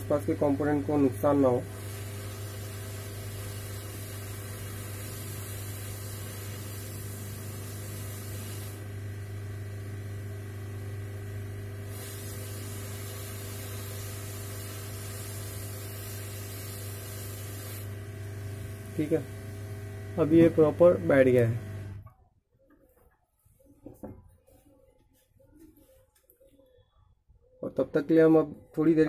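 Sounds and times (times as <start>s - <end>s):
hot air blower hiss: 0.0s - 22.0s.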